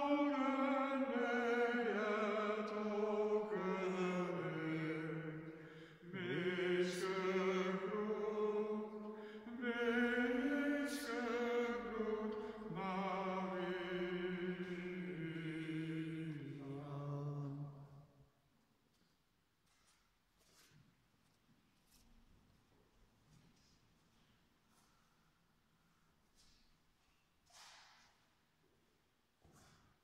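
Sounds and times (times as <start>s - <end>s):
man singing a hymn: 0.0s - 18.0s.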